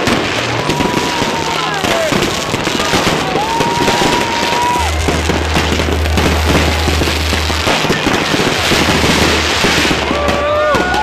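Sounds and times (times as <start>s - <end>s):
firework whistling: 0.0s - 11.0s
fireworks crackling and popping: 0.0s - 11.0s.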